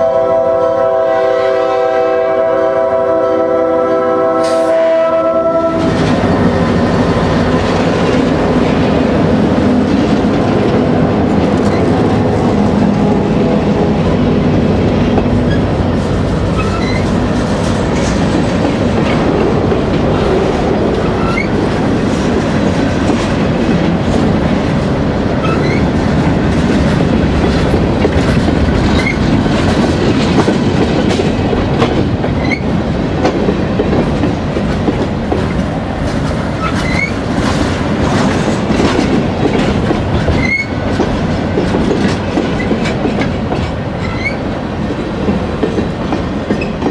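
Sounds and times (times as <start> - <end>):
diesel locomotive engine drone: 0.0 - 46.9
train wheels rumbling on rails: 0.0 - 46.9
clicking over rail joints: 14.7 - 46.9
wheels squeaking: 16.5 - 17.5, 21.1 - 21.6, 25.4 - 25.9, 36.6 - 37.2.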